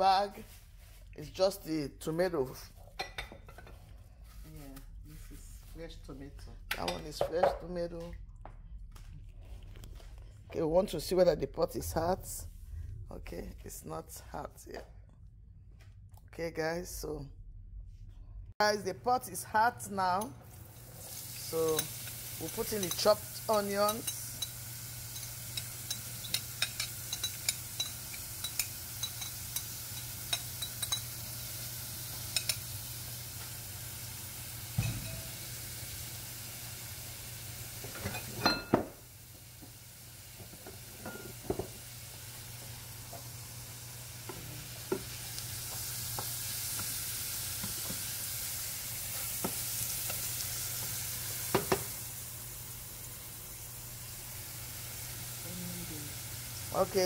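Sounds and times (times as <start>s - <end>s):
onions sizzling in oil: 20.4s - 57.0s.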